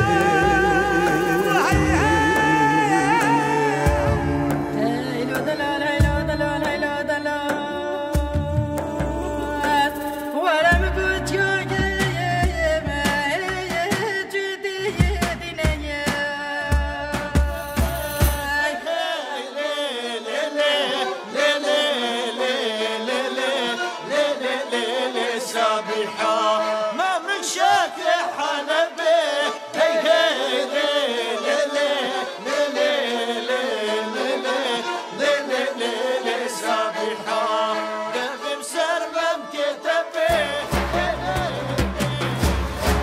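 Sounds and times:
low beat: 0.0s - 14.3s
instrumental accompaniment: 0.0s - 18.6s, 40.3s - 43.0s
group singing folk song: 0.0s - 43.0s.

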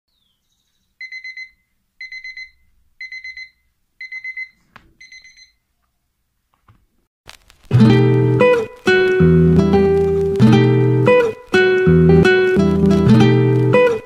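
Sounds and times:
smartphone alarm beeping: 1.0s - 5.6s.

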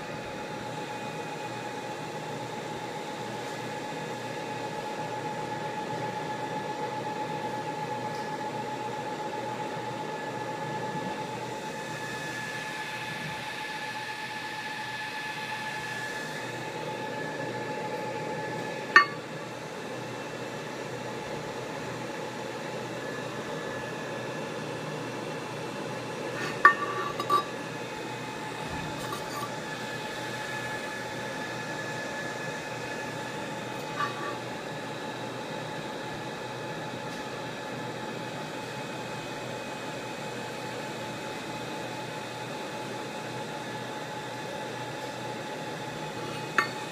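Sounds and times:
laser machine hum with high tone: 0.0s - 46.9s
metal cup clinking on metal table: 19.0s - 19.2s, 26.4s - 27.5s, 29.0s - 29.5s, 46.6s - 46.8s.

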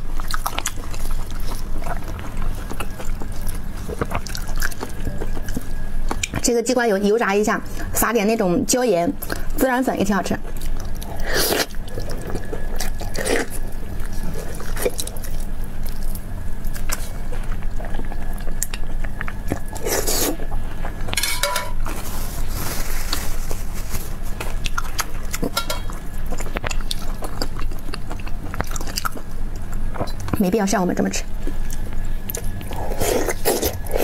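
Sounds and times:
wet chewing and sucking: 0.1s - 6.4s, 10.5s - 21.1s, 31.4s - 34.0s.

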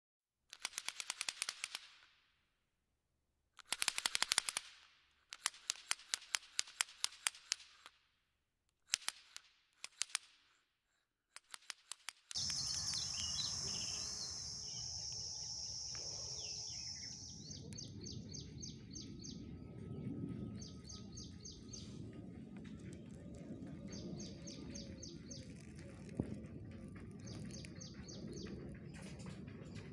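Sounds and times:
high insect-like drone: 12.4s - 17.8s
high chirps: 12.4s - 20.0s
bird calls: 12.4s - 29.9s
low rumble: 12.4s - 29.9s.

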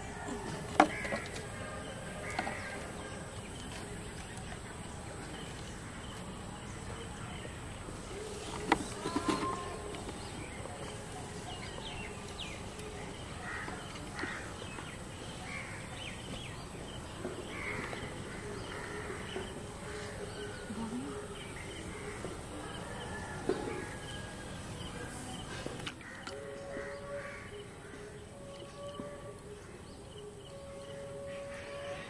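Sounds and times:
outdoor background noise: 0.0s - 32.0s
crow-like birds cawing: 0.8s - 1.4s, 2.2s - 2.9s, 13.4s - 14.6s, 17.5s - 20.3s.

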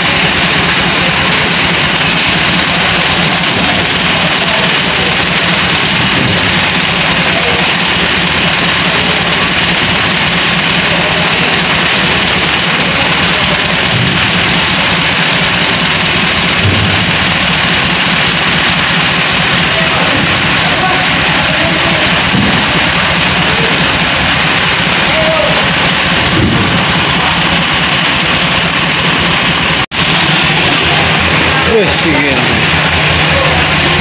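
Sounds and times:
tractor diesel engine idling: 0.0s - 34.0s.

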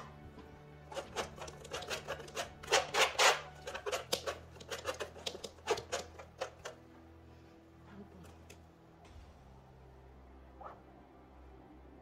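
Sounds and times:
palette knife scraping paint: 0.8s - 6.8s.

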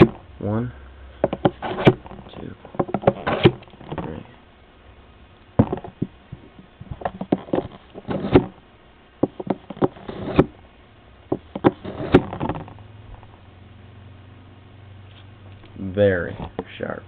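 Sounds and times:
steel scraping on sharpener: 3.0s - 3.6s, 10.0s - 10.4s, 11.8s - 12.3s.

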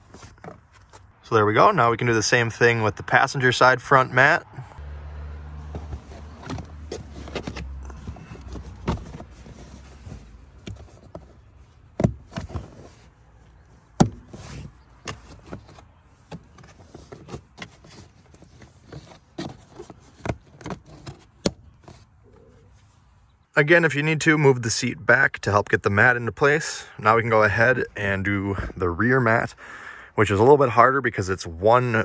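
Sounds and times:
rubber floor mat knocks and scrapes: 5.7s - 13.1s, 14.0s - 22.1s.

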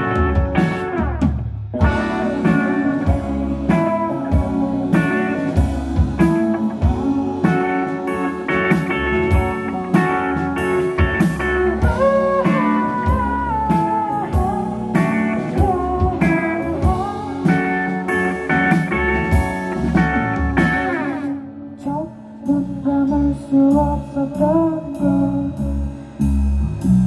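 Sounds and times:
drum kit: 0.0s - 21.4s, 22.4s - 27.0s
electric guitar: 0.0s - 27.0s
woman singing: 1.8s - 10.2s, 11.7s - 18.2s, 21.7s - 25.6s.

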